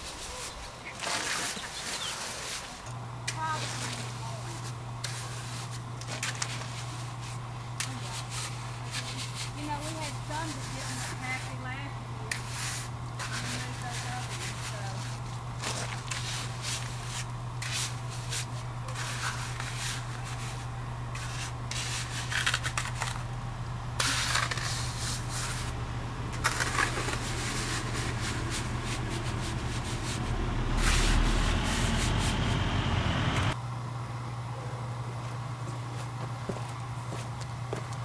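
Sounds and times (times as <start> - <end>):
hand float scraping wet concrete: 0.0 - 11.6, 12.3 - 23.2, 24.0 - 32.4
low rumble: 24.6 - 33.6.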